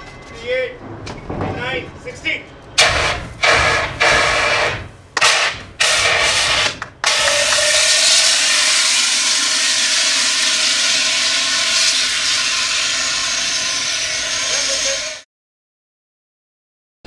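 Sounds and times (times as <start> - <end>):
fire extinguisher hissing: 2.8 - 15.2.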